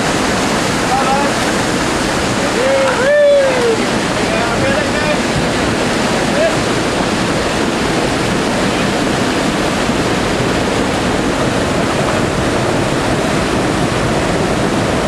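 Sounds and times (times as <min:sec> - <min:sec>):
whitewater rushing over rocks: 0:00.0 - 0:15.0.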